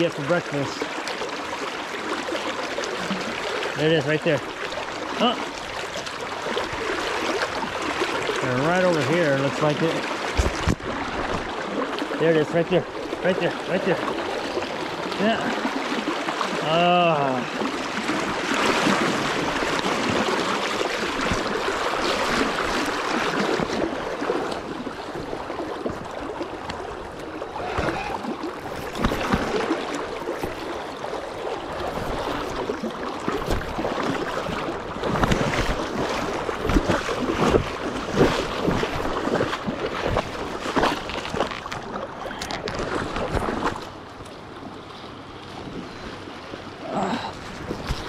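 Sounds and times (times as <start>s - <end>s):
river water rushing: 0.0s - 48.0s.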